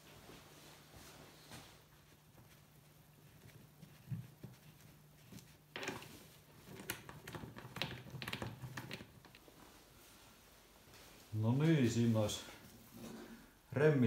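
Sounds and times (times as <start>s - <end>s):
clicks taps and rubbing: 2.0s - 9.5s.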